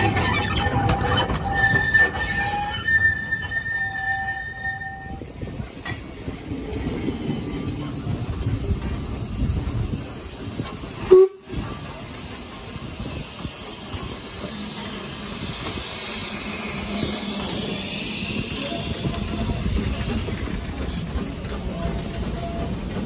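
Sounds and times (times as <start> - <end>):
train rumbling on rails: 0.0 - 23.0
steam locomotive whistle: 0.8 - 5.3, 11.0 - 11.7.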